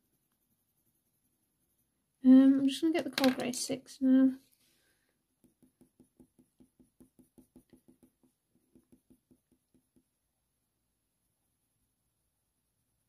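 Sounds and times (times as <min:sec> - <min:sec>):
pencil scratching on paper: 0:00.0 - 0:02.1, 0:05.4 - 0:10.1.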